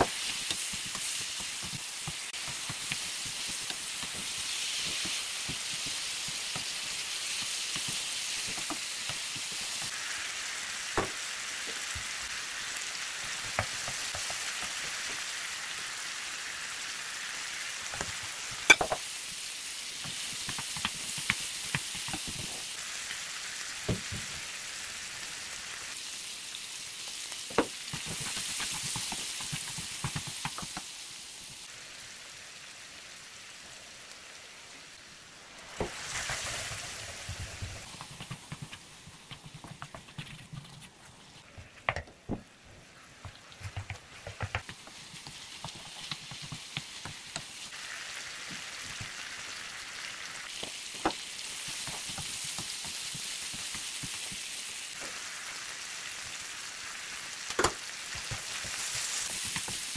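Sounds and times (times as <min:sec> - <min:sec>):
meat sizzling in a wok: 0:00.0 - 0:41.7, 0:42.5 - 0:59.9
spatula scraping and knocking pan: 0:35.8 - 0:42.4.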